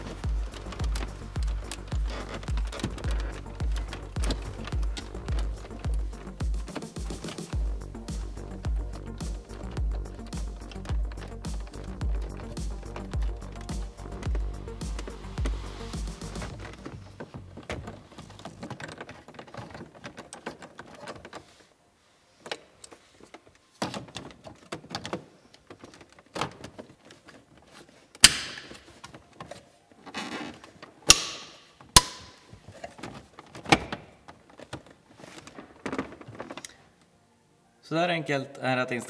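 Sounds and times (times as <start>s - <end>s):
plastic clips snapping: 28.1s - 29.6s, 30.2s - 36.8s.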